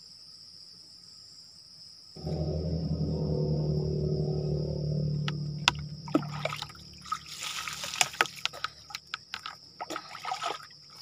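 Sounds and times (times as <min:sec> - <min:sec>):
steady low hum: 0:02.2 - 0:09.0
water dripping: 0:05.1 - 0:10.8
water poured and splashing: 0:06.1 - 0:11.0.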